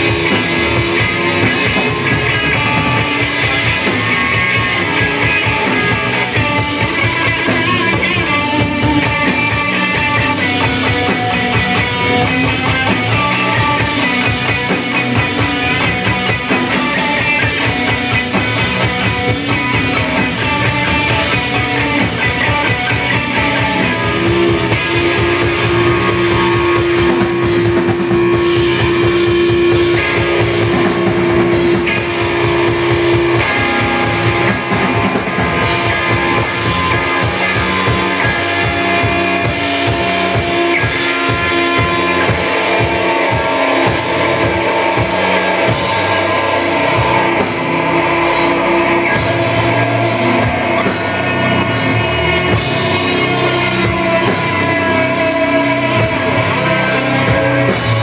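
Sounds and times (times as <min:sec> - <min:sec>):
metal band playing live: 0:00.0 - 0:58.0.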